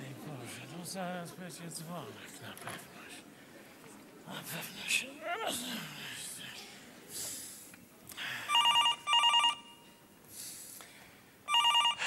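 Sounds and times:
telephone ringing electronic trill: 8.5 - 9.8, 11.5 - 12.0.

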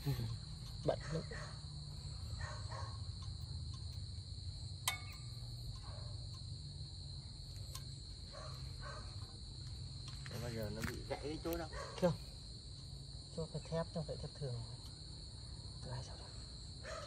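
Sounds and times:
crickets chirping: 0.0 - 17.0
metallic clink: 3.0 - 6.6, 7.4 - 8.0.

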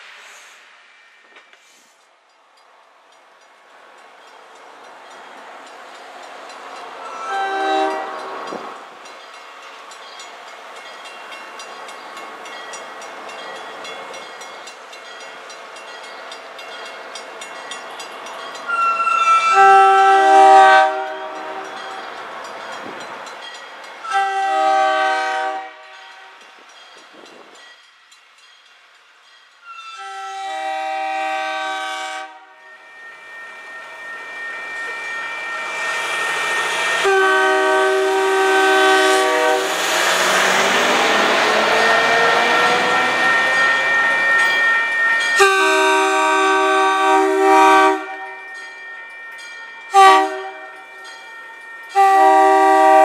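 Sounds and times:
train rumbling: 0.0 - 53.0
train air horn blasts: 7.0 - 8.7, 18.7 - 21.8, 24.0 - 26.4, 29.7 - 33.4, 34.3 - 43.5, 45.4 - 48.4, 49.9 - 50.8, 51.9 - 53.0.

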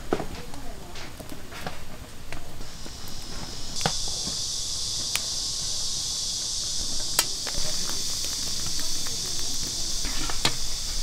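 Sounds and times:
insect chorus: 0.0 - 11.0
sharp clicks: 3.8 - 5.4.

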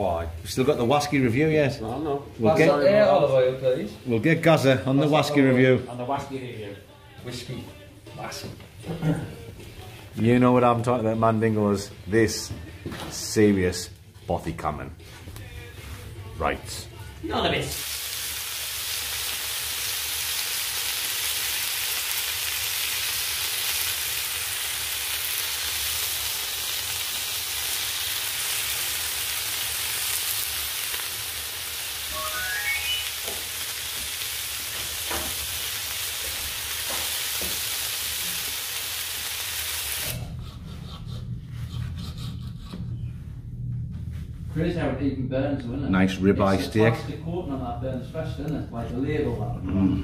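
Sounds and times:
steak sizzling in a hot pan: 17.7 - 40.2
rising run of faint notes: 32.1 - 33.2.

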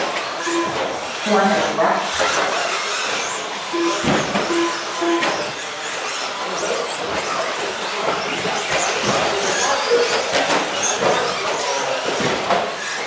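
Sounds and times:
rc truck motors whining: 0.0 - 13.0
short beeps: 0.4 - 0.8, 3.8 - 5.4.

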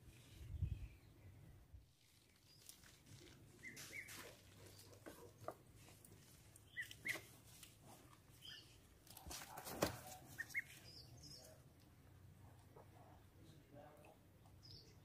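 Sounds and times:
high chirping calls: 3.6 - 4.9, 6.6 - 7.3, 8.4 - 8.8, 10.3 - 11.6.

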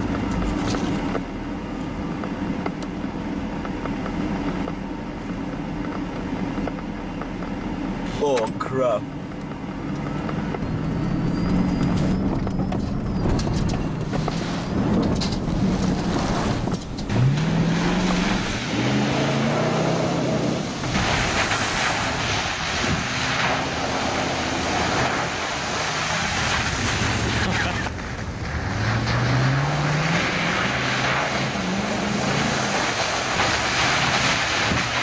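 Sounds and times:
truck engines revving: 0.0 - 35.0
water and mud splashing: 15.6 - 35.0.

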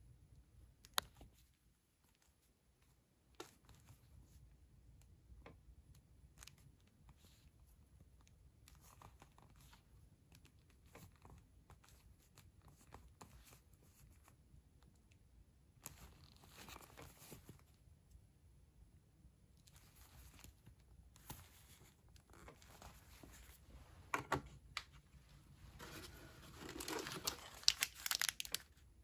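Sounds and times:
glove rustle: 19.6 - 24.1, 24.8 - 28.7.

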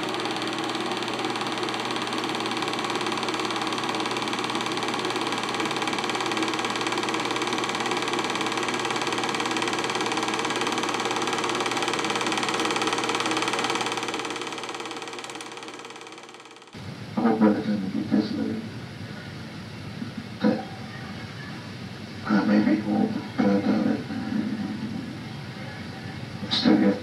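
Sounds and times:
film projector whirring and clattering: 0.0 - 20.6.

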